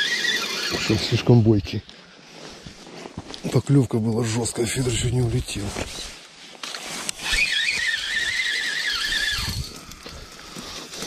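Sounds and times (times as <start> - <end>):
fishing reel drag squealing: 0.0 - 1.2, 7.2 - 11.0.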